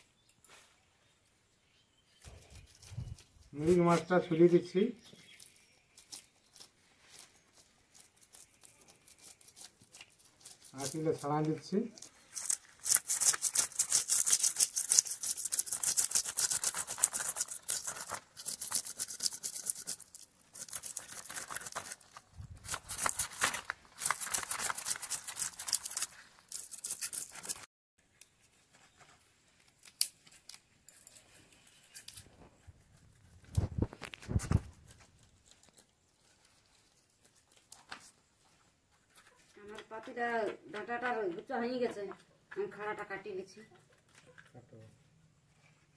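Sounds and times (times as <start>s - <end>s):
knife scraping fish scales: 6.0s - 11.3s, 12.0s - 27.7s.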